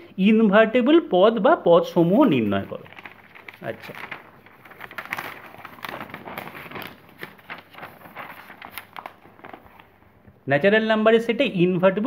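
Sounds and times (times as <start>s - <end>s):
paper rustling and crackling: 2.0s - 10.4s.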